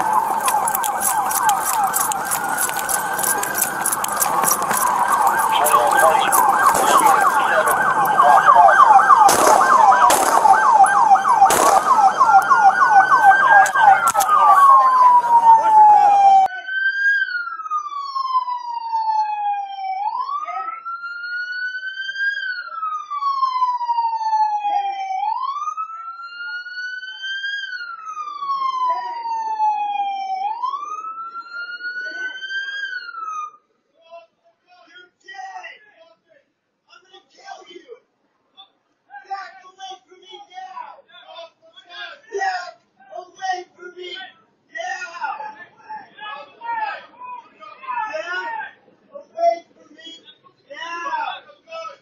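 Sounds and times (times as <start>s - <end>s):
police sirens yelping: 0.0s - 16.5s
siren wailing up and down: 0.0s - 21.5s.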